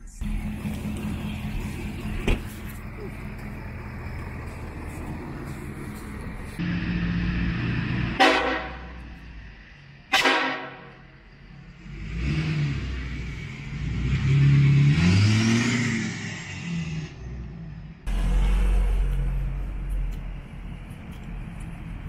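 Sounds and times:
diesel truck accelerating: 0:00.0 - 0:22.0.

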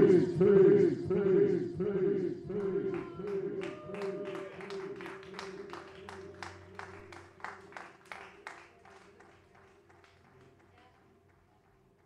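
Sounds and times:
faint low hum: 0:00.0 - 0:12.0
small audience clapping: 0:02.6 - 0:12.0.

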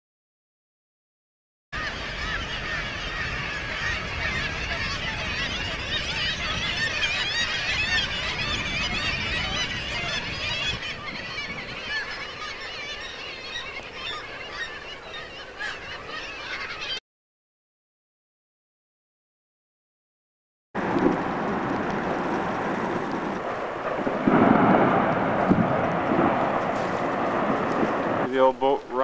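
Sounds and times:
seabird colony crying: 0:01.8 - 0:17.0
low rumble: 0:20.8 - 0:28.3.

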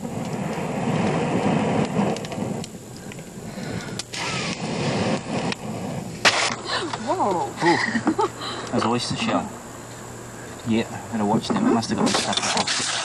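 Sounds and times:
man blowing on fire: 0:00.0 - 0:07.0
fire rumbling and crackling: 0:00.0 - 0:13.0
loud sharp crack: 0:04.0 - 0:06.8.

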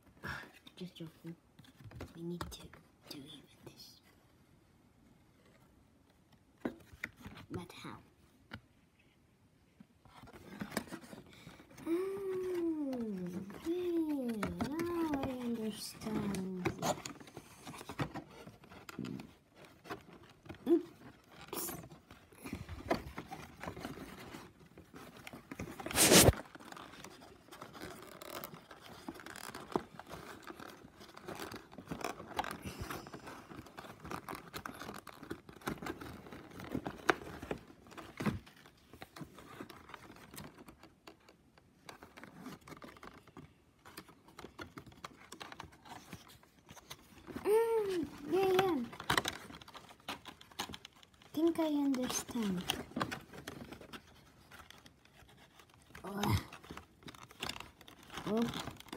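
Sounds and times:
cardboard taps and scrapes: 0:21.7 - 0:30.6
cardboard rasp: 0:25.6 - 0:26.4.

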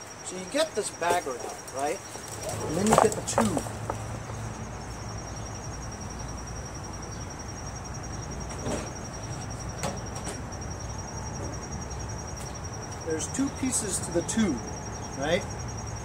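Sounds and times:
crickets trilling: 0:00.0 - 0:16.0.

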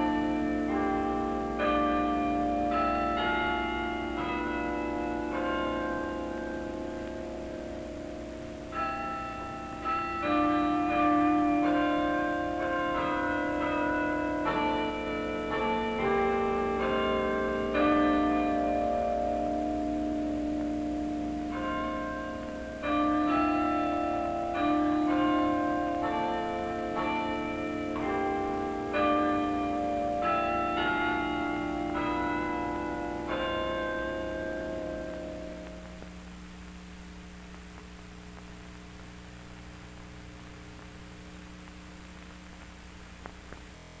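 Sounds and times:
bells playing slow tune: 0:00.0 - 0:36.4
electrical mains hum: 0:00.0 - 0:44.0
recording hiss: 0:00.0 - 0:44.0.

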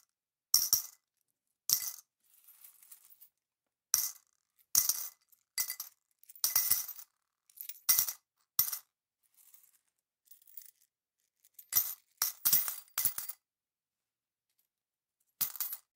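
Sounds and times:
coins clinking into a pot: 0:15.4 - 0:15.8.

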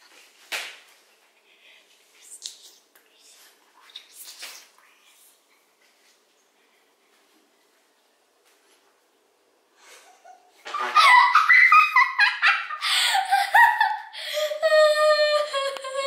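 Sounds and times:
girl laughing high-pitched: 0:09.8 - 0:16.0.

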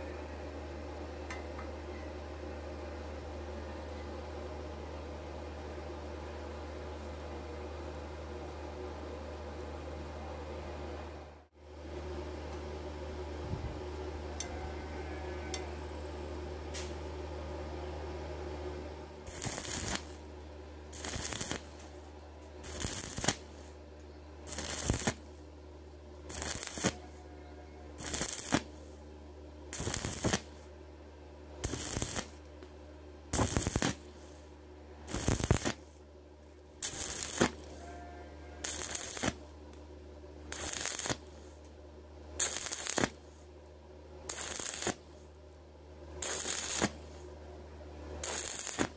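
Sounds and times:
steady low hum: 0:00.0 - 0:48.9
welding arc crackling and sizzling: 0:19.2 - 0:25.5, 0:26.1 - 0:27.3, 0:27.9 - 0:29.0, 0:29.7 - 0:30.8, 0:31.6 - 0:37.9, 0:38.6 - 0:39.9, 0:40.5 - 0:41.7, 0:42.4 - 0:43.6, 0:44.3 - 0:45.4, 0:46.2 - 0:47.4, 0:48.2 - 0:48.9.

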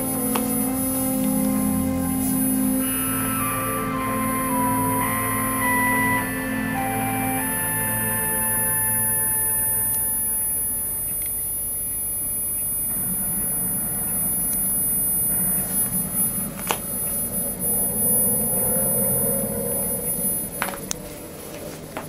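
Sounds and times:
television high-pitched whistle: 0:12.2 - 0:20.6.

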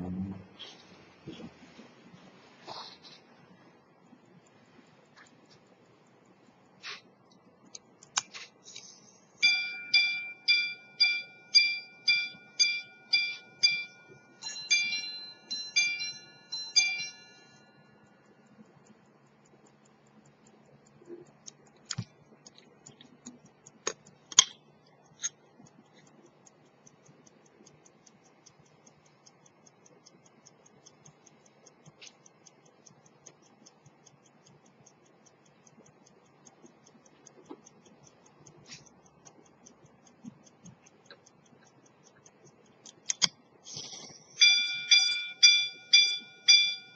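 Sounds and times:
watch ticking rapidly: 0:01.0 - 0:46.9
sharp mechanism clicks: 0:04.0 - 0:09.4, 0:16.8 - 0:46.9
pocket watch striking gongs: 0:09.4 - 0:17.8, 0:44.4 - 0:46.9.

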